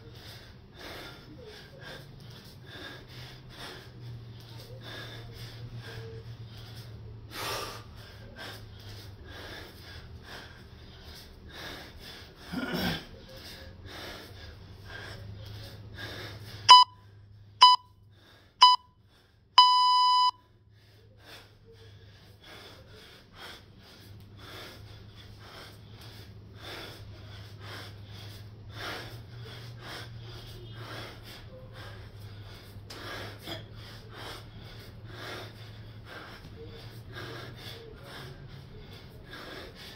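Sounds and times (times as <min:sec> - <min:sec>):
man breathing hard: 0:00.0 - 0:39.9
workout timer beeps: 0:16.7 - 0:17.0, 0:17.6 - 0:18.0, 0:18.6 - 0:19.0, 0:19.6 - 0:20.4.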